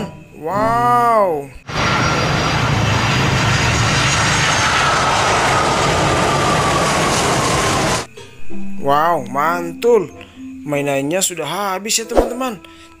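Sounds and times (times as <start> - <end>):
jet engines rushing with whine: 1.6 - 8.1.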